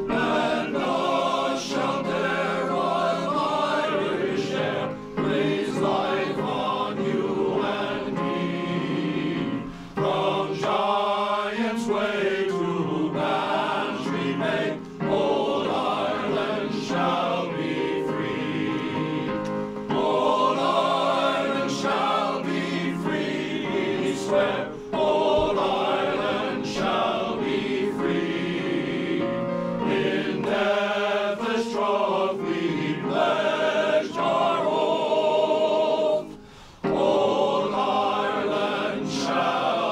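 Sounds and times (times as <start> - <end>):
male choir singing in harmony: 0.0 - 39.9.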